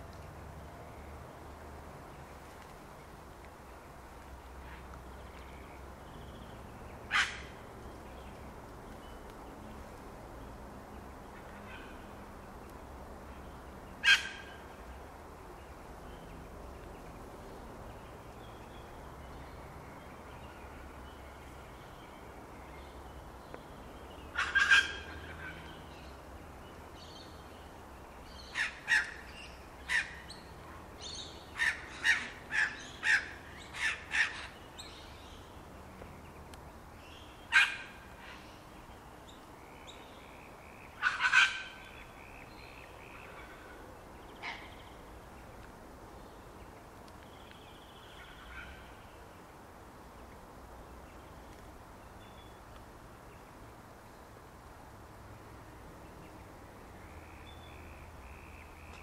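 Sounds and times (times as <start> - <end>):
faint background noise: 0.0 - 59.0
birds calling: 4.6 - 9.2, 18.0 - 26.2, 26.9 - 45.6.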